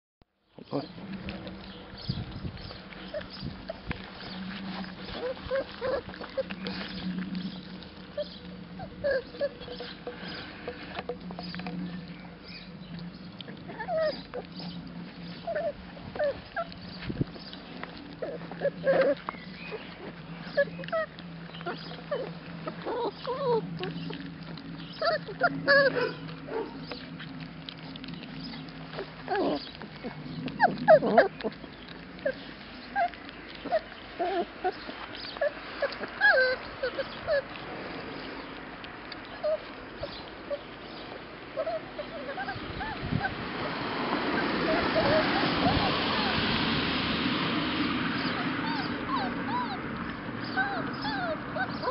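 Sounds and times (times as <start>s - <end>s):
puppies eating from bowls: 0.5s - 51.9s
puppies whimpering: 0.7s - 46.9s, 48.1s - 51.9s.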